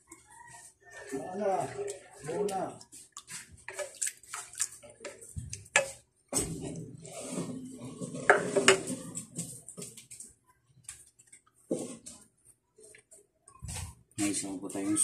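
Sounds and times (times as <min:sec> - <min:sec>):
ladle stirring sauce: 0:00.0 - 0:10.3
ladle scraping pan: 0:00.1 - 0:09.5.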